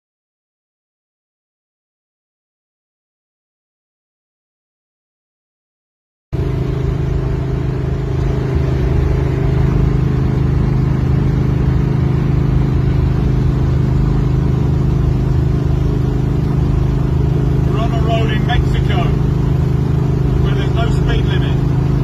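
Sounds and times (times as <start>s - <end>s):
car engine drone inside cabin: 6.4s - 22.0s
road noise: 6.4s - 22.0s.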